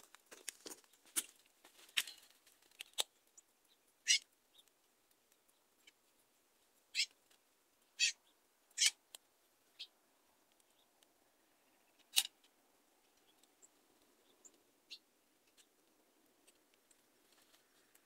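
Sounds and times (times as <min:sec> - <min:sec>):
small bird sharp call notes: 0:04.0 - 0:04.6, 0:06.9 - 0:07.1, 0:08.0 - 0:09.0.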